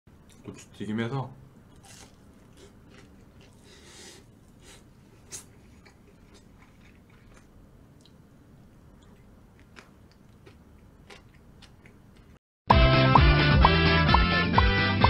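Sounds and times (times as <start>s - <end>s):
chewing crisp fried food: 1.7s - 12.4s.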